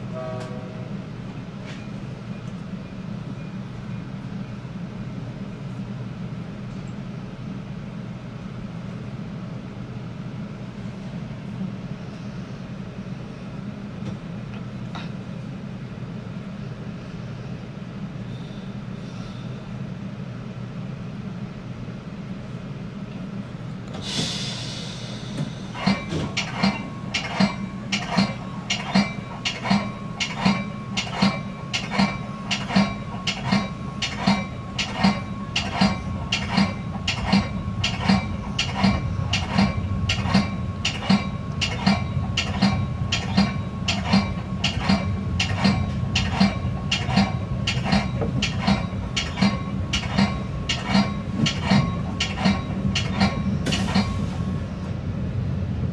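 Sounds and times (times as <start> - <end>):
train running rumble: 0.0 - 55.9
short hiss of air: 24.0 - 25.8
train bell ringing: 25.8 - 54.5.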